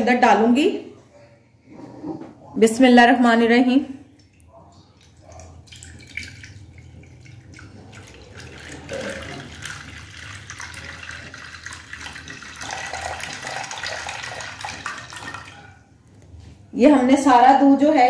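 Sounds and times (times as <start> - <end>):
milk pouring into a metal pan: 4.2 - 15.8.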